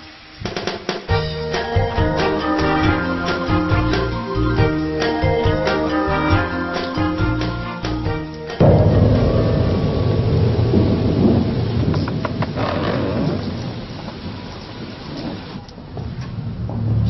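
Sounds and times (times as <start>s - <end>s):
steady rain: 0.0s - 5.2s, 8.6s - 16.6s
thunder rumbling: 8.6s - 15.6s.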